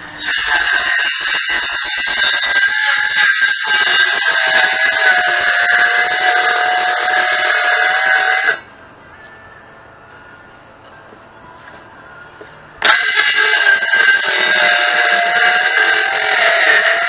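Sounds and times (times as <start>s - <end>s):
electric saw cutting wood: 0.0s - 8.7s, 12.8s - 17.0s.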